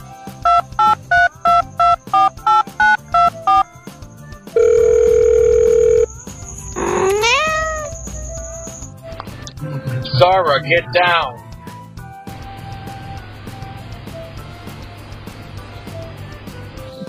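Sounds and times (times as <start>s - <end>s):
keypad touch-tone beeps: 0.5s - 3.6s, 4.6s - 6.1s
cat meowing: 6.8s - 8.0s.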